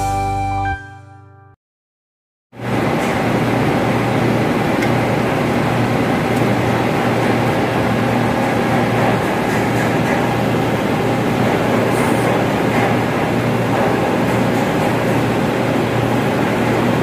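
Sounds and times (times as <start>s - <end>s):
ventilation machinery drone: 2.6s - 17.0s.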